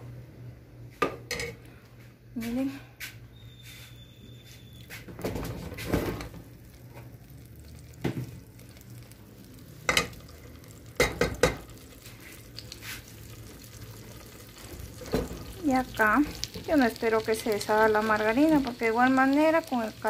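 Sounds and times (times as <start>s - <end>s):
fat sizzling in a pot: 3.4s - 20.0s
cookware knocking and clattering: 11.0s - 11.6s.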